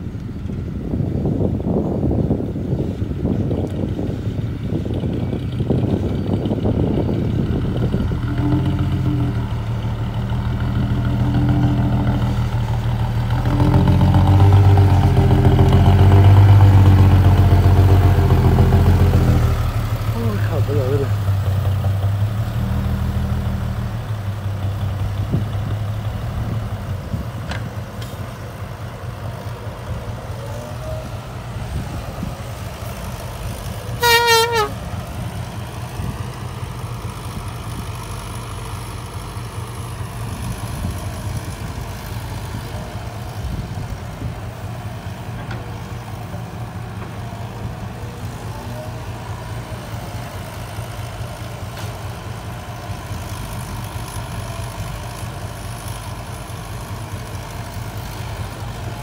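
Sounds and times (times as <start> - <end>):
heavy diesel engines running: 0.0 - 59.0
short horn blast: 34.0 - 34.8.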